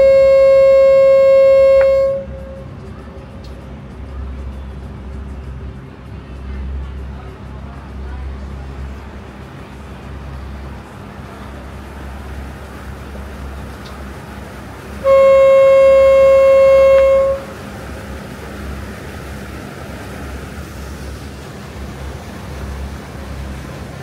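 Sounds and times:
boat horn blast: 0.0 - 2.8, 14.9 - 17.7
boat engine drone: 0.0 - 24.0.

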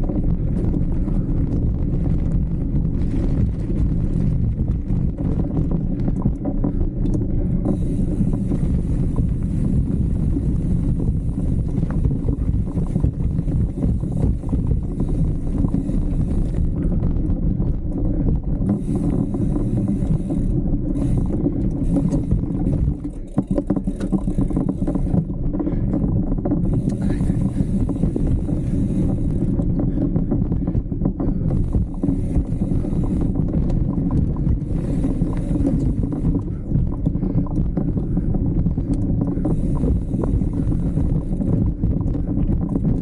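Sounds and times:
bike rattles and knocks: 0.0 - 43.0
bike tyre noise: 0.0 - 43.0
wind noise on microphone: 0.0 - 43.0.

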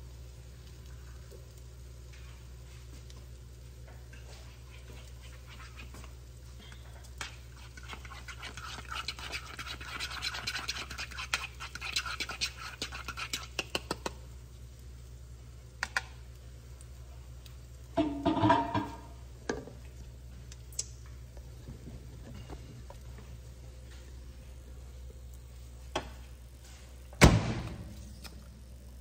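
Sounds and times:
low steady hum: 0.0 - 29.0
fork whisking eggs in bowl: 4.1 - 14.2.

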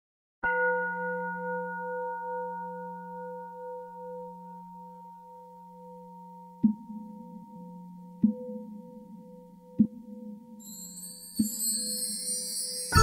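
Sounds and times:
singing bowl ringing: 0.4 - 6.6, 10.6 - 13.0.

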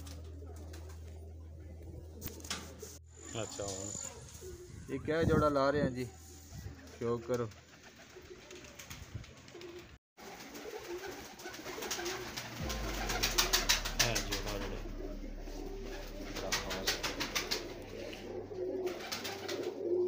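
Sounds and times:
pigeons cooing: 6.4 - 13.5, 15.5 - 20.0
wings fluttering: 6.5 - 14.6, 16.3 - 20.0.

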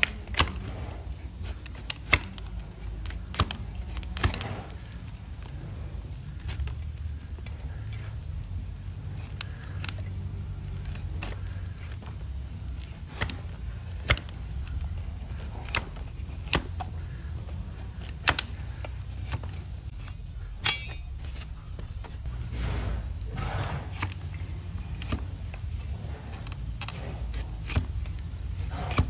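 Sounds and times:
blade paring hoof: 0.0 - 29.0
low rumble: 19.8 - 29.0.

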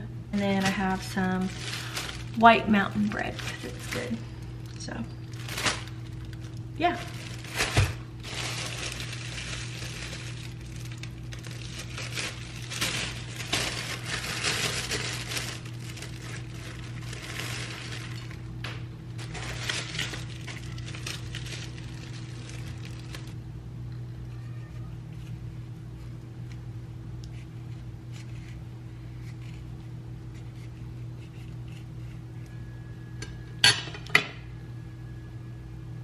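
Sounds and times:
low hum: 0.0 - 36.0
plastic bag crinkling: 0.4 - 23.4.

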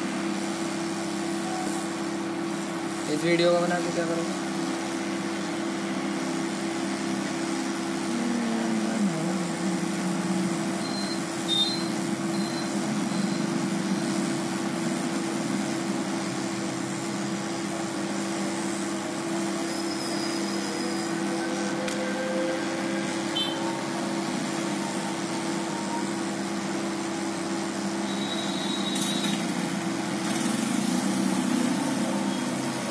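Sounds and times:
machine humming: 0.0 - 32.9
short high peeps: 10.8 - 13.6.

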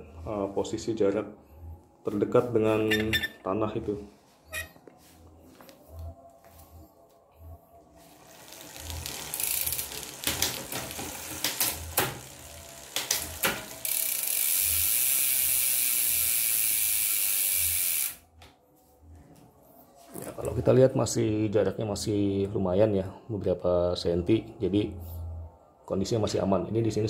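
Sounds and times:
freehub pawls buzzing: 7.9 - 18.2
bicycle chain running with clicks: 8.1 - 18.2.

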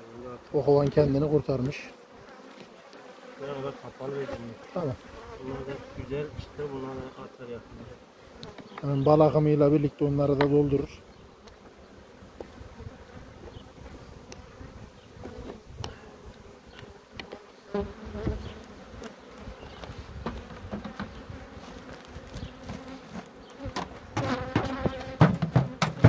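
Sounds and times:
honeybees buzzing: 0.0 - 26.0
wooden hive knocks: 10.3 - 10.7, 18.1 - 18.5, 19.8 - 26.0.

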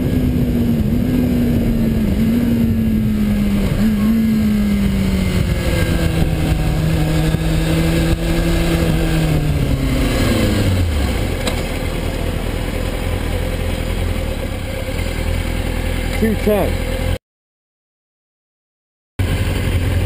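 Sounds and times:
wind rushing over microphone: 0.0 - 11.4
motorcycle engine winding down: 0.0 - 17.2, 19.2 - 20.0.

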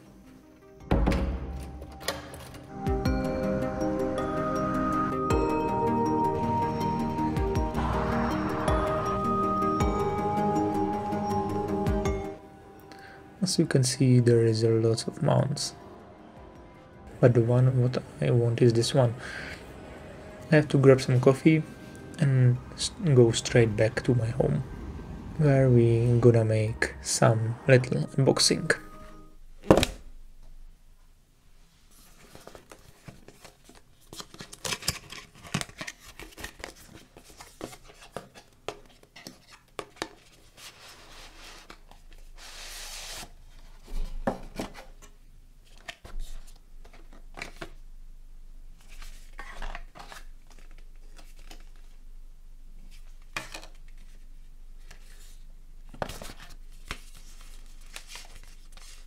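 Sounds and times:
cardboard rustling: 31.8 - 47.8, 48.8 - 52.0, 52.8 - 59.0.

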